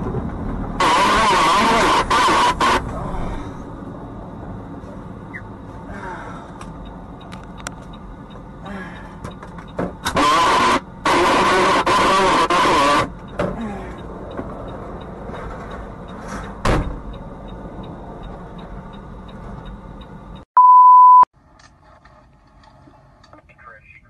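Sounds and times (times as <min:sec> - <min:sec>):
steady one-tone beep: 0:20.6 - 0:21.3.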